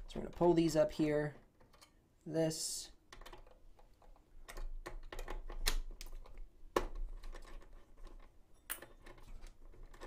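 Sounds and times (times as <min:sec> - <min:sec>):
plastic clicks and knocks: 0:03.1 - 0:10.0.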